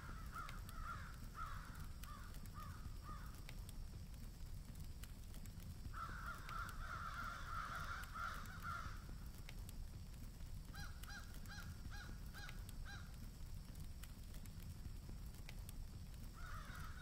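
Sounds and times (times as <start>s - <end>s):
crows cawing: 0.0s - 3.4s, 5.9s - 9.1s, 10.7s - 13.2s, 16.4s - 17.0s.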